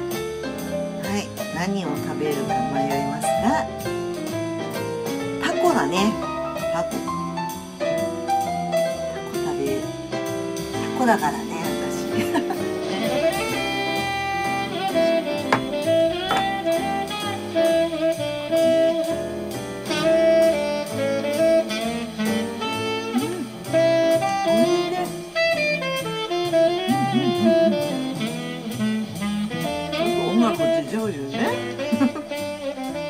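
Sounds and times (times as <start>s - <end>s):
saxophone melody: 12.7s - 33.0s
steady drum beat: 13.1s - 19.9s.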